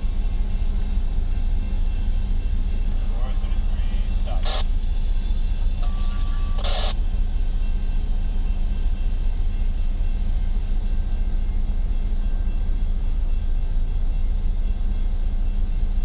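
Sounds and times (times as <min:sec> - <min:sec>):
diesel locomotives rumbling: 0:00.0 - 0:16.0.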